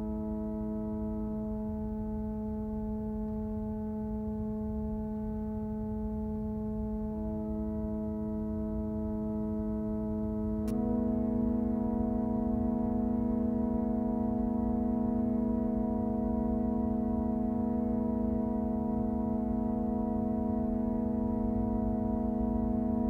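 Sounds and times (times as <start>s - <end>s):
ambient drone chord: 5.7s - 23.0s
click: 10.6s - 10.9s.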